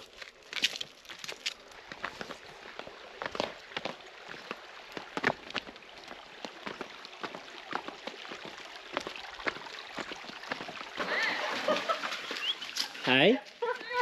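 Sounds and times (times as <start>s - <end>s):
footsteps and knocks on rock: 0.0s - 10.9s
running water rushing: 0.0s - 14.0s.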